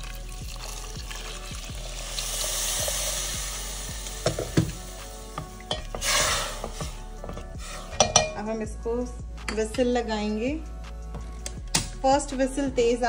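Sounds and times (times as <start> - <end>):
water sizzling in hot pan: 0.0 - 8.0.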